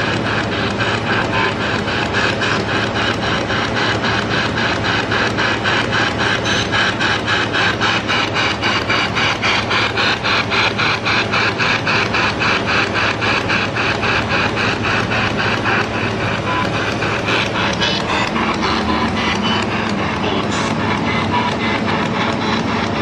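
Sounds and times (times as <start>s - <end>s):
radio scanning static: 2.4s - 23.0s.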